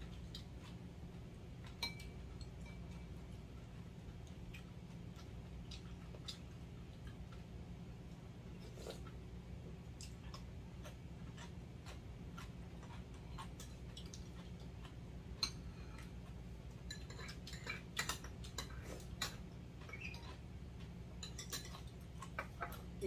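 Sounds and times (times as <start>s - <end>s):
utensils clinking on bowls: 1.7s - 3.0s, 16.9s - 19.4s, 21.2s - 22.5s.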